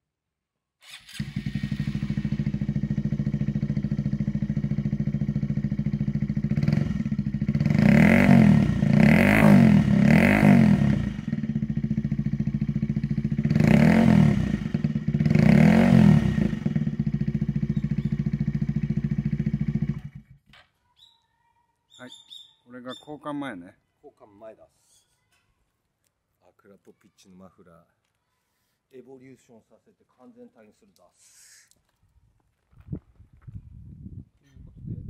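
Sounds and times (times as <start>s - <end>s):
motorcycle engine idling and revving: 0.8s - 20.6s.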